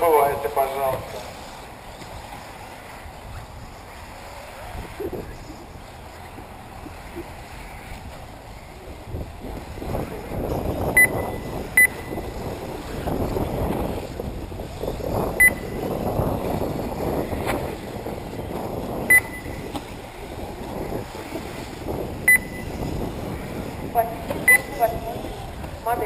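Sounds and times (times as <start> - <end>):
wind on microphone: 0.9 - 26.0
short high electronic beeps: 11.0 - 12.2, 19.1 - 19.6, 22.3 - 22.7, 24.5 - 24.8.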